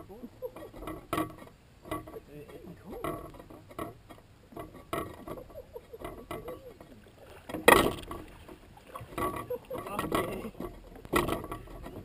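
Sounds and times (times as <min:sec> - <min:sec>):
knocks and rattles on metal boat: 0:00.0 - 0:12.0
loud thump on boat: 0:07.5 - 0:09.4.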